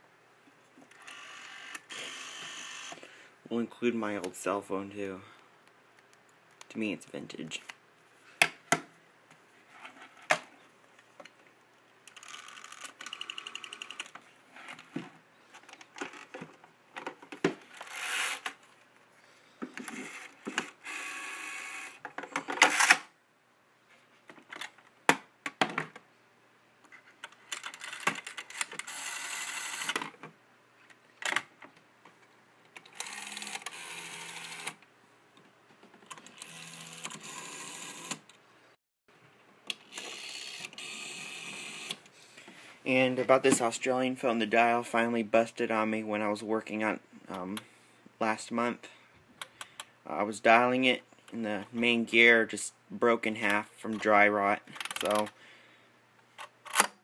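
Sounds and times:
rotary dial whirring clicks: 12.1 - 14.2, 32.8 - 34.8.

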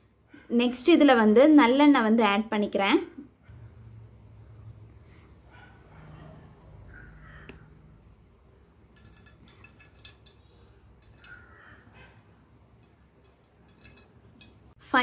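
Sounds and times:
oil trickling: 8.9 - 11.8, 12.7 - 14.7.

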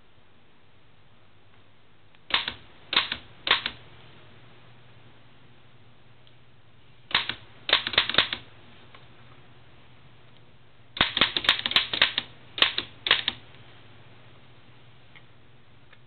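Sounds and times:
typewriter clacking: 2.3 - 3.8, 7.1 - 8.4, 11.0 - 13.4.

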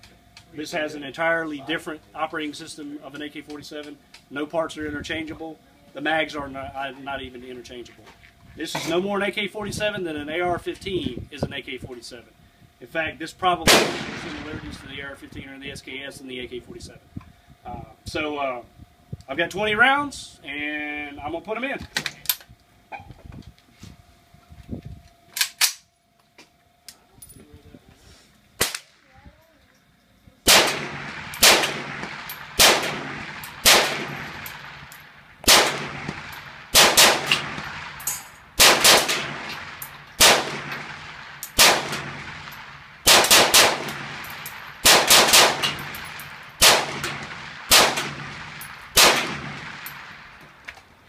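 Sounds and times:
rifle gunshots with echo: 13.6 - 14.9, 30.5 - 50.4.

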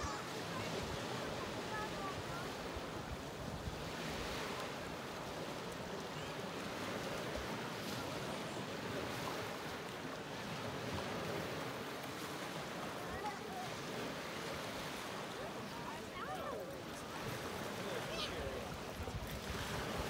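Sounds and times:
small waves breaking on shore: 0.0 - 20.0
wind buffeting microphone: 18.5 - 20.0.

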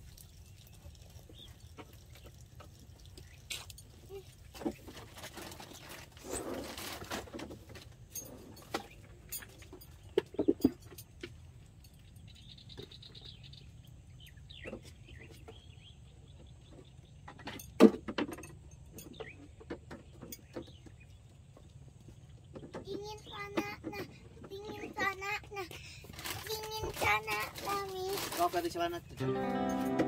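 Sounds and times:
rustle: 0.0 - 15.8, 24.3 - 30.0
cooking gear clinking and knocking: 4.8 - 13.0, 17.2 - 20.9.

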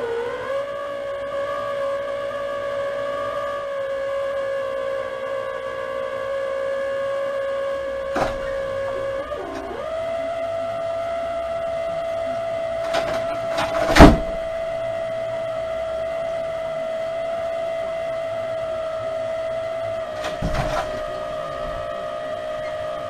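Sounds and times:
high-pitched hum: 0.0 - 23.0
sharp knocks: 8.1 - 9.6, 12.8 - 14.6, 20.2 - 21.9.

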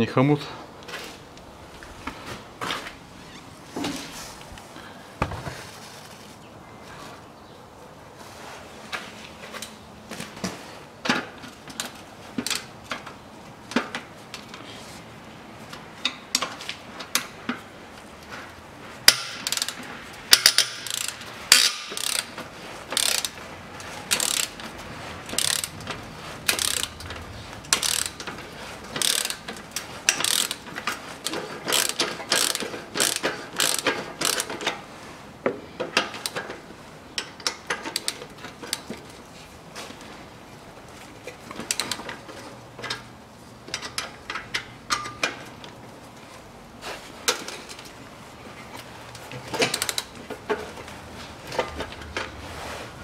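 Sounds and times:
ratchet wrench clicking: 19.0 - 22.3, 22.9 - 23.4, 24.1 - 24.6, 25.3 - 25.7, 26.5 - 27.1, 27.7 - 34.7.

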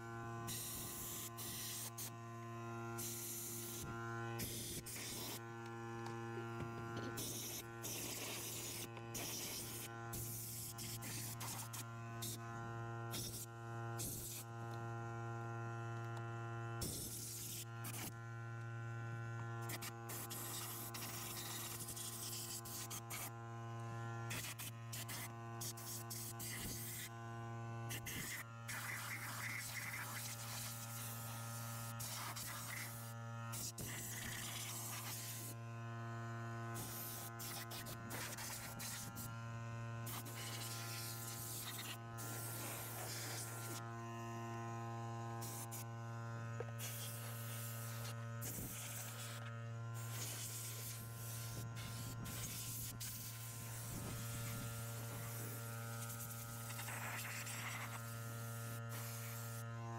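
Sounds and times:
electric motor buzzing: 0.0 - 59.9.

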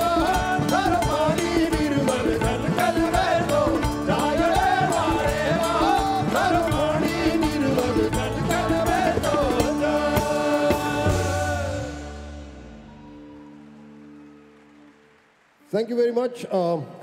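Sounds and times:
man singing: 0.0 - 12.4
rock band playing: 0.0 - 13.7.

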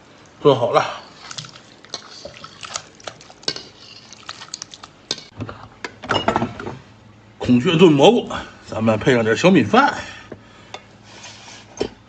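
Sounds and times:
ladle scraping an iron wok: 3.4 - 4.2.

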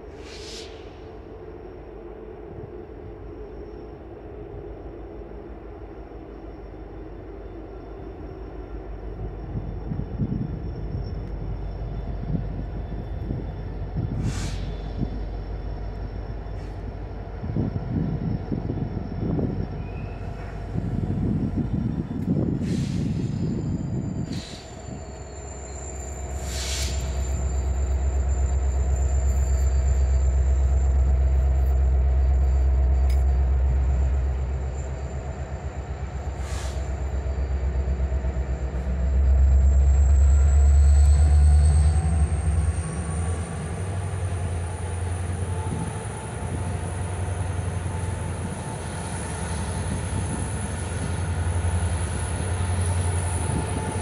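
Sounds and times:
diesel locomotives rumbling: 0.0 - 54.0
high wheel squeal: 9.6 - 17.1, 17.8 - 54.0.

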